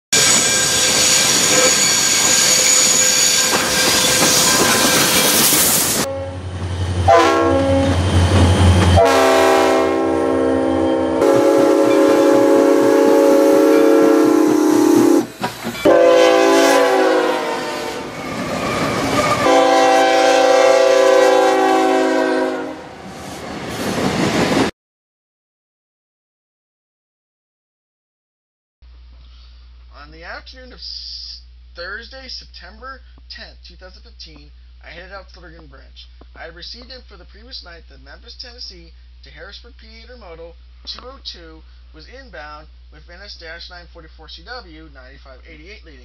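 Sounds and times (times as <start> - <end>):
multi-chime locomotive whistle: 0.2 - 6.4, 7.1 - 8.0, 8.9 - 23.0
locomotive working hard: 0.2 - 20.5.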